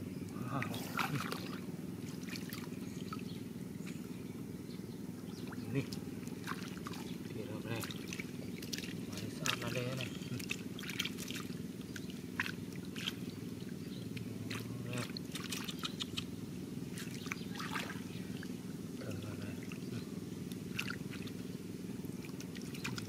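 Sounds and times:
low steady hum: 0.0 - 23.0
splashing in muddy water: 0.6 - 2.8, 5.4 - 16.2, 16.9 - 21.5, 22.1 - 23.0.

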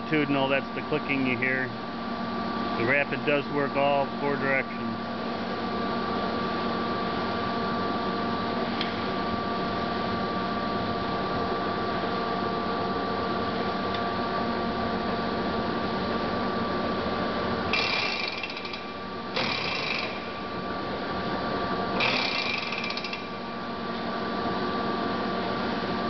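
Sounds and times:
lathe humming and whining: 0.0 - 26.0
high-pitched mechanical rattling: 17.7 - 20.6, 22.0 - 23.6.

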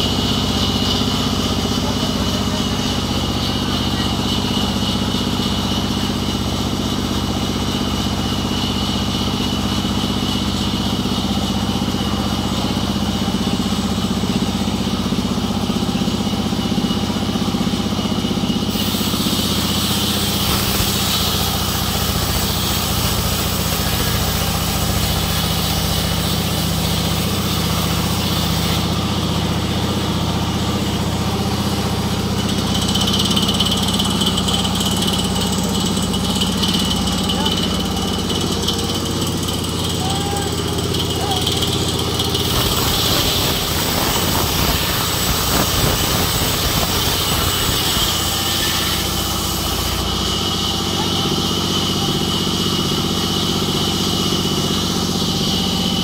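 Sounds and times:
band saw machine hum: 0.0 - 56.0
saw blade cutting log: 18.5 - 56.0.

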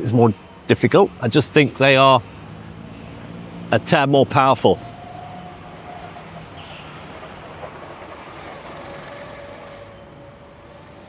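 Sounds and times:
go-kart engines humming: 0.0 - 11.0
thin engine whine: 2.2 - 11.0.

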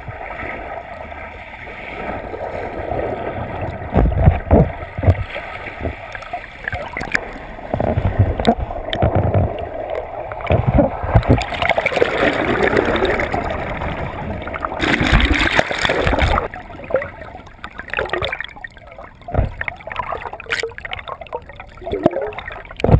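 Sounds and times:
underwater water churning and gurgling: 0.0 - 22.9
low underwater thumps: 3.8 - 6.1, 6.7 - 12.1, 19.2 - 21.0, 21.9 - 22.9.

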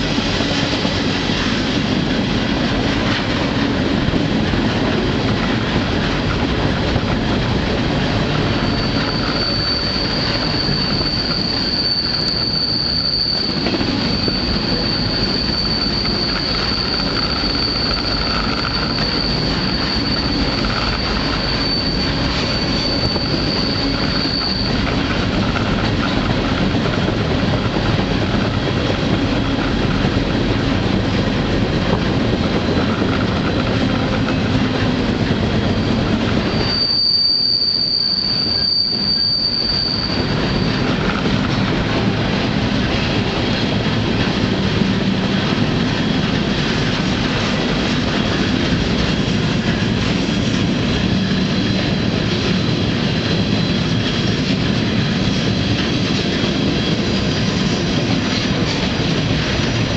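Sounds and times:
train wheels rumbling on rails: 0.0 - 59.9
high wheel squeal: 8.4 - 31.1, 31.9 - 43.9.

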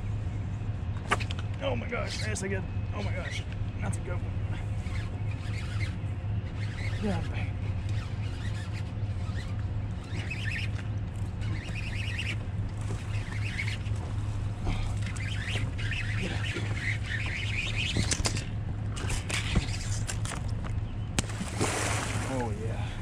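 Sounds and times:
fishing reel whirring and clicking: 4.8 - 14.0, 15.0 - 20.4.

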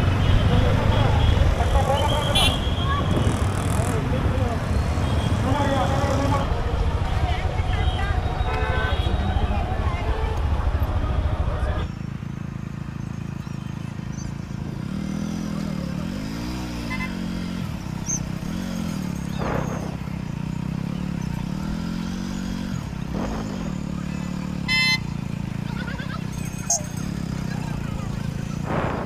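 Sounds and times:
vehicle engines revving: 0.0 - 29.0
vehicle horn toot: 2.0 - 3.1, 7.8 - 9.4, 24.6 - 25.2.

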